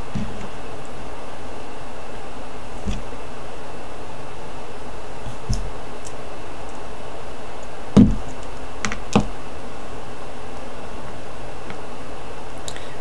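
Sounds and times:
steady hiss: 0.0 - 13.0
loud knock: 8.0 - 8.2.

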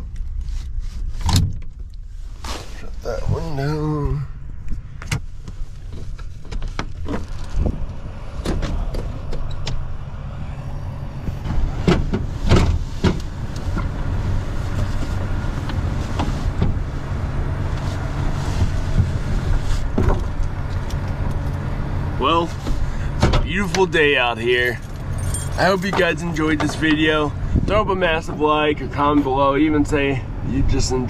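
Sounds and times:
steady low rumble: 0.0 - 31.0
knocks and clatter in truck bed: 11.4 - 13.9.

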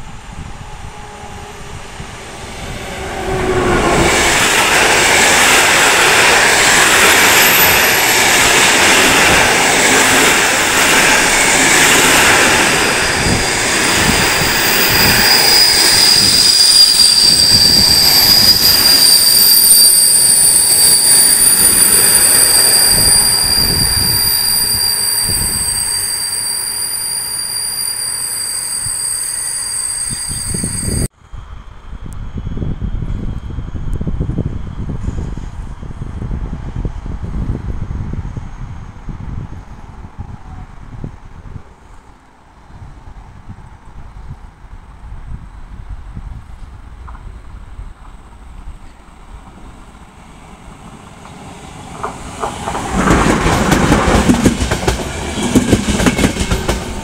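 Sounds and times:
train rumbling over rails: 0.0 - 57.0
wheel squeal: 11.3 - 31.1.

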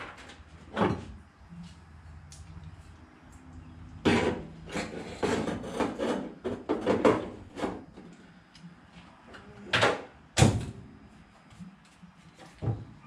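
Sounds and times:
scraping on sheet metal: 4.0 - 7.8.

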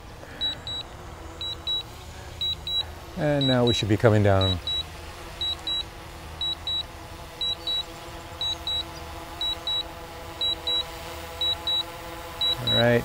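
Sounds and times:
faint steady hum: 0.0 - 13.0
short high double beeps: 4.4 - 4.8, 12.4 - 12.9.

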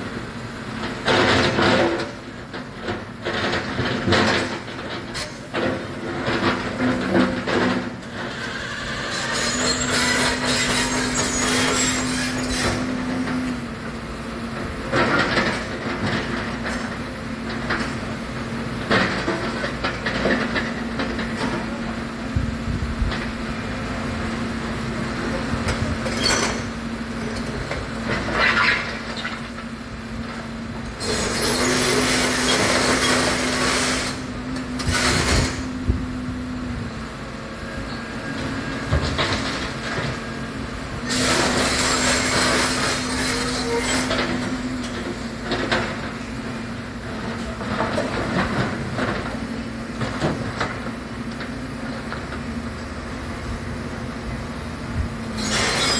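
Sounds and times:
excavator engine and hydraulics humming: 0.0 - 55.9.

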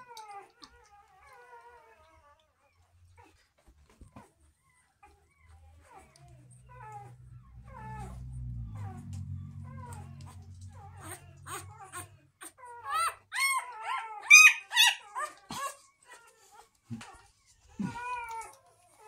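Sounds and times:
puppy yelping and whimpering: 0.0 - 19.0.

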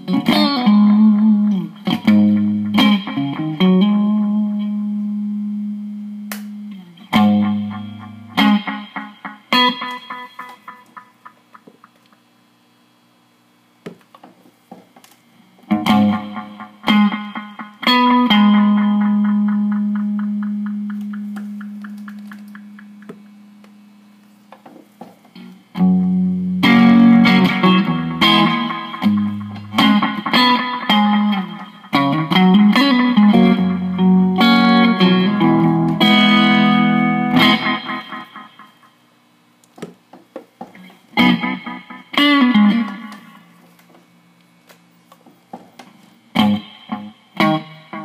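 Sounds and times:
electric guitar with delay echoes: 0.0 - 6.0, 6.6 - 12.0, 15.7 - 23.9, 25.4 - 39.0, 40.8 - 43.6, 46.3 - 48.0.

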